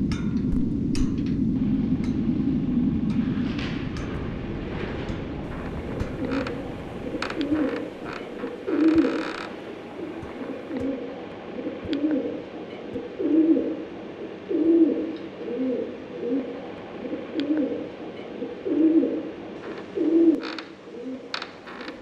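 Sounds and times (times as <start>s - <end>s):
pigeons cooing: 5.5s - 21.4s.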